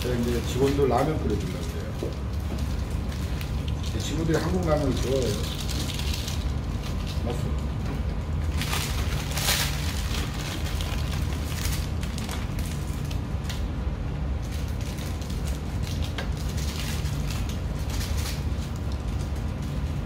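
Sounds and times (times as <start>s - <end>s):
sachet tearing: 0.0s - 7.4s, 8.5s - 13.6s, 14.4s - 20.0s
plastic packet crinkling: 0.0s - 7.6s, 8.4s - 13.7s, 14.4s - 20.0s
low hum: 0.0s - 20.0s.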